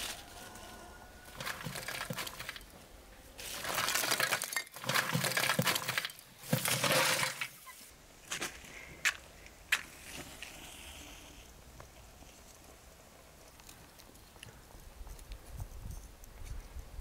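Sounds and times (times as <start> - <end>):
charcoal clattering into brazier: 1.3 - 2.7, 3.4 - 7.7.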